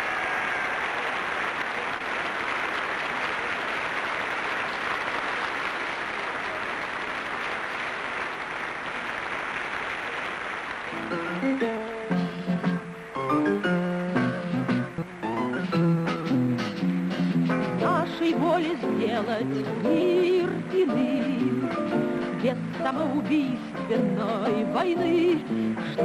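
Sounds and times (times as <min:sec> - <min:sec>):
large audience applauding: 0:00.0 - 0:15.9
music: 0:10.8 - 0:26.0.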